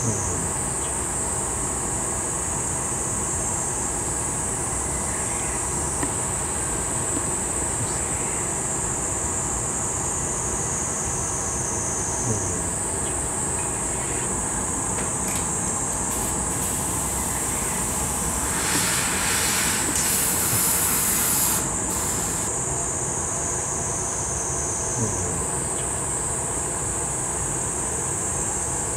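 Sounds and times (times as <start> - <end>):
gas furnace roaring: 12.3 - 22.8
high hiss: 13.9 - 22.9.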